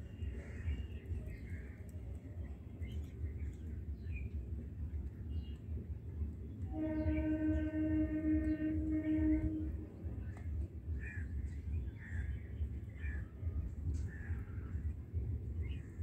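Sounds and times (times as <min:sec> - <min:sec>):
horn-like tone: 0:06.7 - 0:09.9.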